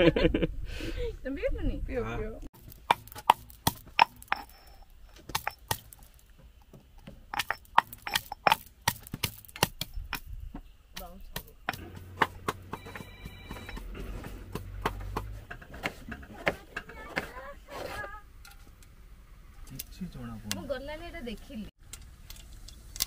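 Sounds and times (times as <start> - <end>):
pestle pounding in stone mortar: 2.6 - 10.4, 11.0 - 17.4.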